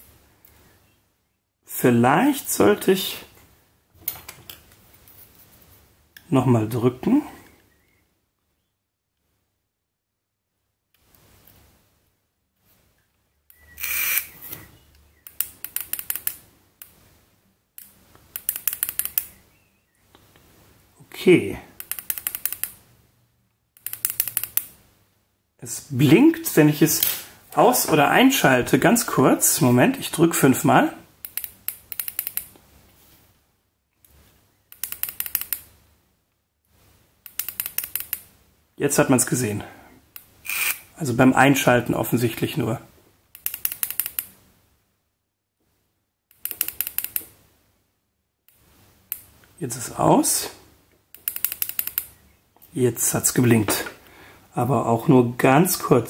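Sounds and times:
device being handled: 46.3 - 47.3, 51.2 - 52.2.

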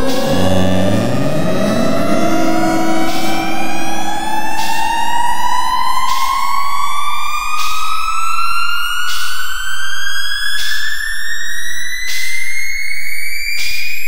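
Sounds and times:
low steady hum: 0.0 - 7.4
synthesized tone gliding upward: 0.0 - 9.8.

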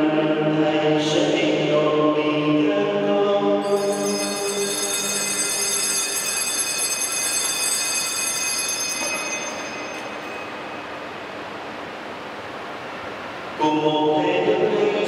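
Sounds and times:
altar bells ringing: 3.6 - 11.0.

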